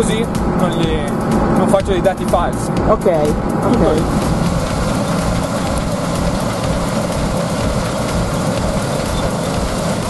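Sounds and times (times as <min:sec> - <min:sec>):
combine harvester running: 0:03.6 - 0:10.0.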